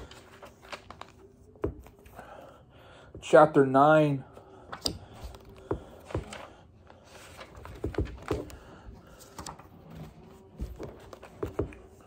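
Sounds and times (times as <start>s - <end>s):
book pages turning: 0.0s - 2.2s, 4.7s - 12.0s
paper rustles and taps: 4.8s - 6.5s, 7.3s - 12.0s.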